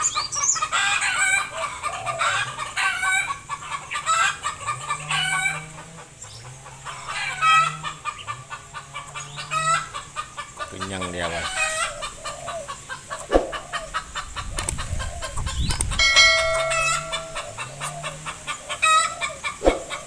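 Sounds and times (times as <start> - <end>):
chickens clucking: 0.0 - 20.0
low steady drone: 16.0 - 18.3.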